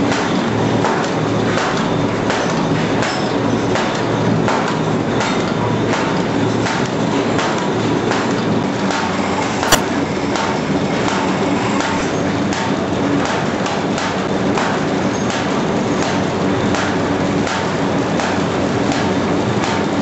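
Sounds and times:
sharp click: 9.7 - 9.9.

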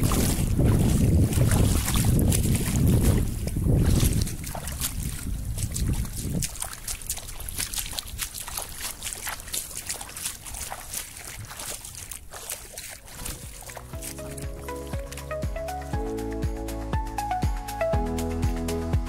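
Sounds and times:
wind buffeting microphone: 0.0 - 14.1
feet wading through shallow water: 0.0 - 16.8.

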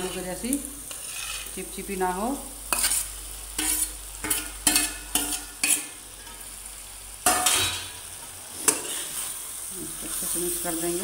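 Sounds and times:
low sizzle of frying: 0.0 - 11.0
steel ladle scraping a plate: 0.9 - 1.6, 2.7 - 6.4, 8.6 - 9.3.

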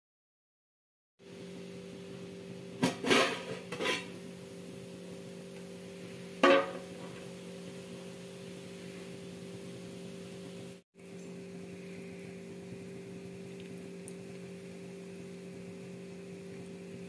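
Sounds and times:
steady low hum: 1.2 - 17.0
pot lid clinking: 2.8 - 4.2, 6.4 - 7.1
sharp metal clank: 6.4 - 6.9.

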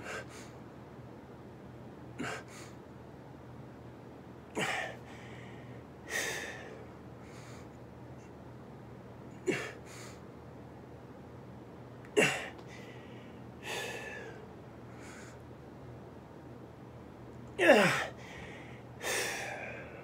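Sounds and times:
man breathing heavily: 0.0 - 0.6, 2.2 - 2.8, 4.6 - 7.7, 9.5 - 10.2, 12.2 - 15.4, 17.6 - 20.0
low room hum: 0.0 - 20.0.

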